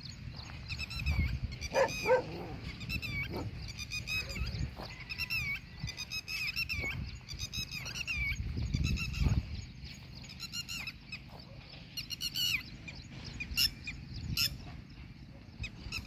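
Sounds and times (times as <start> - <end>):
dog barks: 1.7 - 3.6.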